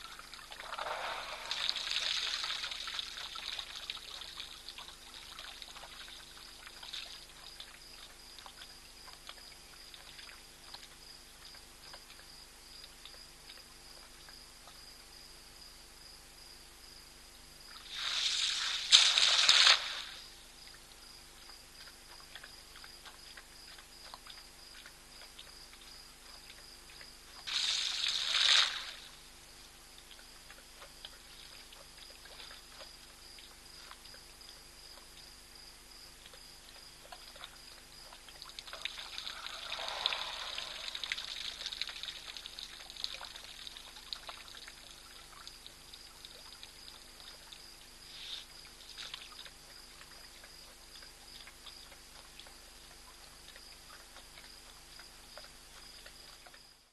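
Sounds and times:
water pouring and splashing: 0.0s - 7.2s, 17.8s - 20.2s, 27.4s - 29.2s, 38.3s - 47.4s
water trickling: 0.0s - 10.9s, 36.8s - 56.7s.

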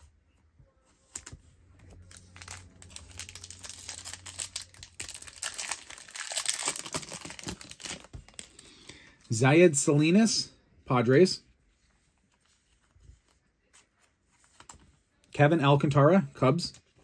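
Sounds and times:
foil wrapper tearing and crinkling: 2.1s - 8.7s.

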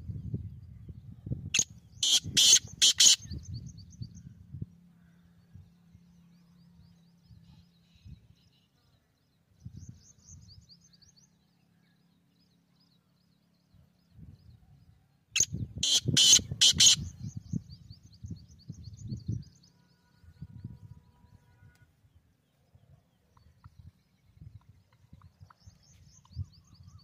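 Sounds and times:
francolin loud call: 15.4s - 17.0s.

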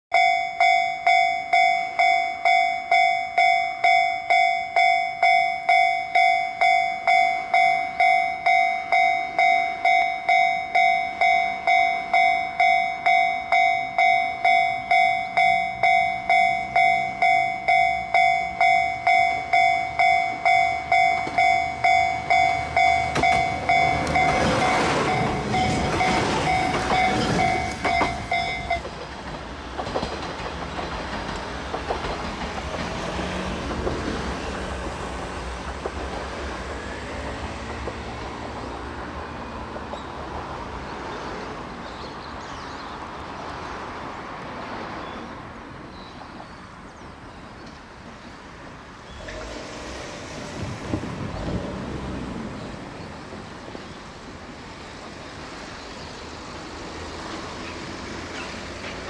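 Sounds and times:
level crossing bell ringing: 0.1s - 28.9s
wheels on rails: 0.2s - 40.6s, 49.0s - 59.0s
diesel train engine hum: 0.2s - 42.4s, 43.0s - 59.0s.

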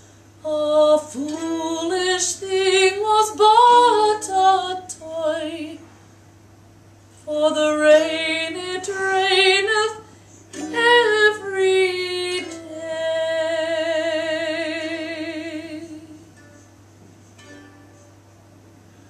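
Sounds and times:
woman singing with vibrato: 0.4s - 5.8s, 7.2s - 16.4s.

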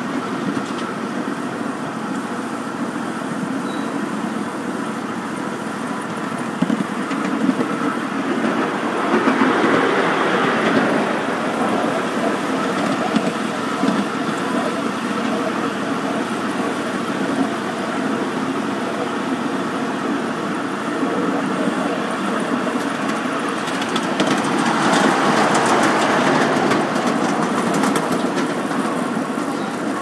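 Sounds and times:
miniature train running on track: 0.0s - 30.0s.

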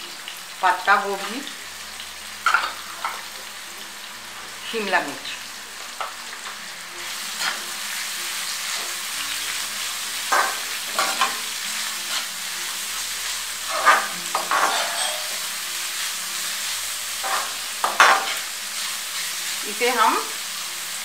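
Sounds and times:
vegetables sizzling in hot oil: 0.0s - 21.0s
metal spatula scraping pan: 13.6s - 15.5s, 17.2s - 18.5s.

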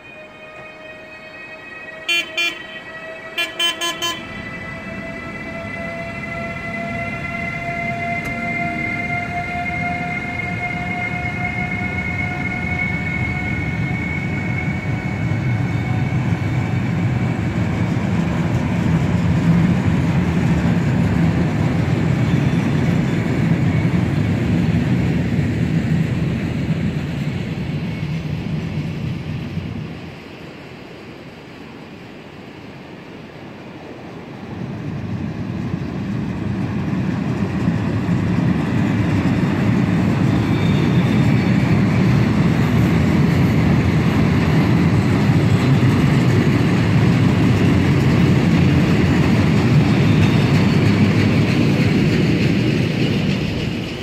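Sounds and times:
locomotive horn toots: 0.1s - 4.5s
wagons rolling past: 36.8s - 54.0s.

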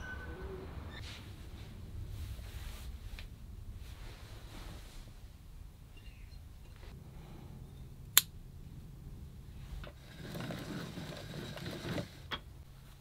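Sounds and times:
yarn winder whirring and rattling: 9.8s - 12.4s.

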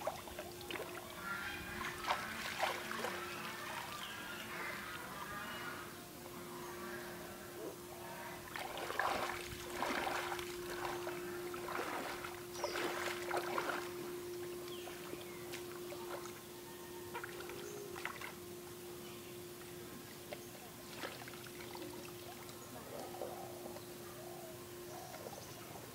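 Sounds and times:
shallow water sloshing and splashing: 0.0s - 4.1s, 8.4s - 16.4s, 17.1s - 18.4s, 20.1s - 22.6s
steady faint hum: 0.0s - 25.9s.

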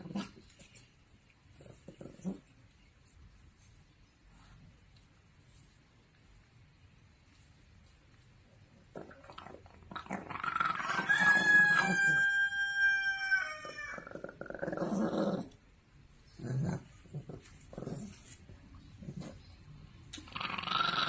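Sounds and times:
dog growling: 0.0s - 0.6s, 1.5s - 2.5s, 8.9s - 12.0s, 13.9s - 15.6s, 16.3s - 18.4s, 20.2s - 21.0s.

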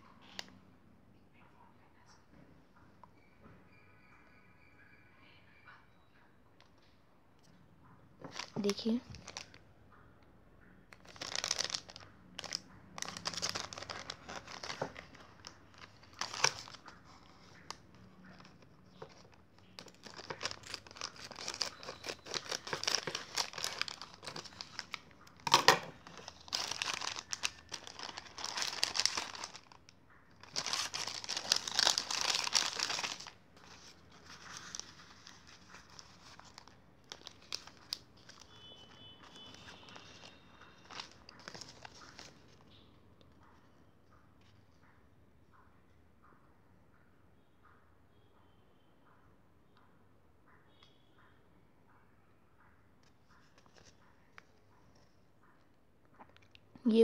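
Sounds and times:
paper leaflet rustling: 8.2s - 9.6s, 11.0s - 29.8s, 30.4s - 42.6s, 53.4s - 55.0s
foil packet crinkling: 8.3s - 9.6s, 10.9s - 42.6s.

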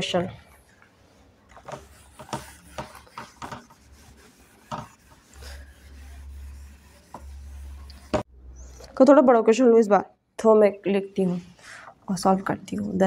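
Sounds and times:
duster wiping whiteboard: 1.0s - 8.3s.

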